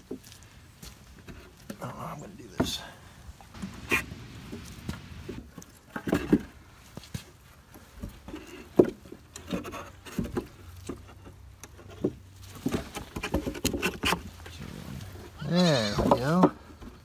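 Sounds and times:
wooden boards knocking and scraping: 0:03.6 - 0:06.6, 0:07.7 - 0:14.5, 0:15.2 - 0:17.0.

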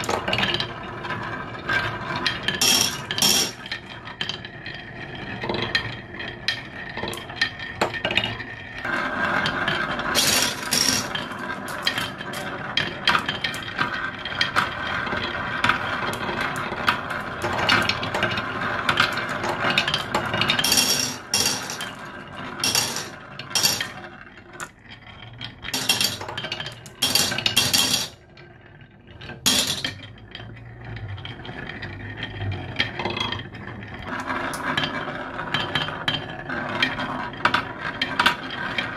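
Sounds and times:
marbles rolling on wood: 0:00.0 - 0:38.9
marble clinks: 0:02.5 - 0:03.7, 0:10.1 - 0:12.5, 0:19.8 - 0:24.7, 0:25.7 - 0:28.2.

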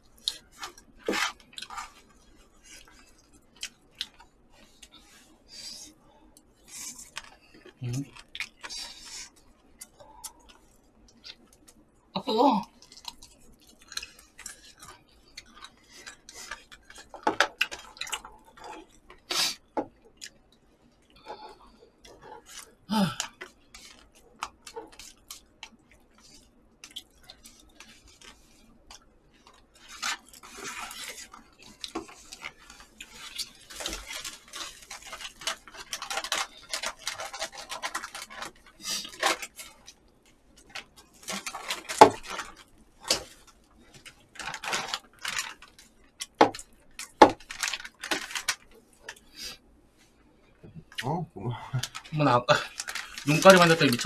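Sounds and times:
scraping and rustling: 0:00.2 - 0:03.3, 0:21.3 - 0:49.5.

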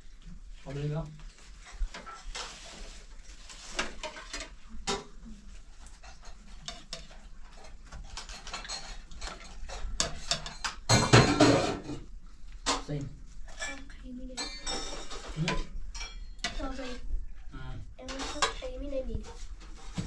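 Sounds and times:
spoon and plates clinking: 0:06.1 - 0:12.0, 0:13.5 - 0:16.6.

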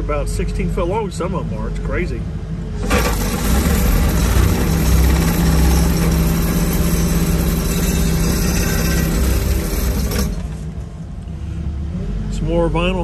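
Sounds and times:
constant hum: 0:00.0 - 0:13.0
excavator engine and hydraulics: 0:00.0 - 0:13.0.

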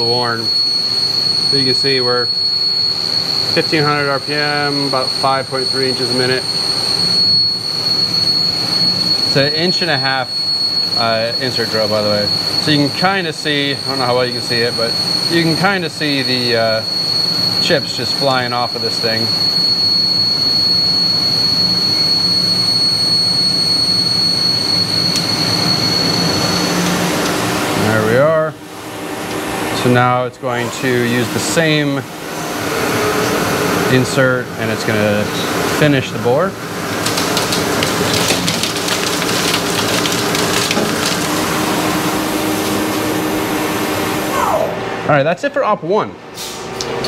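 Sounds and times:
lathe drill squealing: 0:00.0 - 0:28.2
spindle humming: 0:00.0 - 0:44.9
coolant spraying and splashing: 0:36.0 - 0:44.3.

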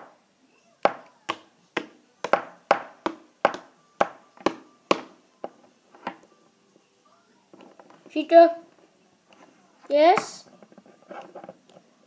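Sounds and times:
plastic toy tapping hard surface: 0:00.8 - 0:05.1.

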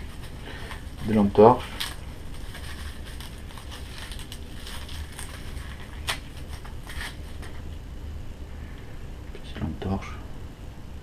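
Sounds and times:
packaging rustling: 0:00.0 - 0:07.7
packaging clicks: 0:00.1 - 0:07.6.

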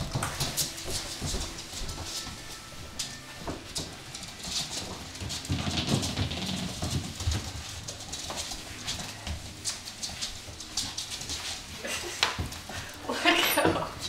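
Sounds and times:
dog claws clicking on floor: 0:00.0 - 0:14.0.

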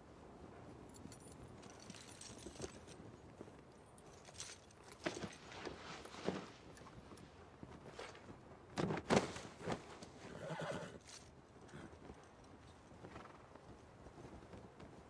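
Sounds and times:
hoof strikes: 0:00.9 - 0:15.0
horse whinnying: 0:10.2 - 0:12.0.

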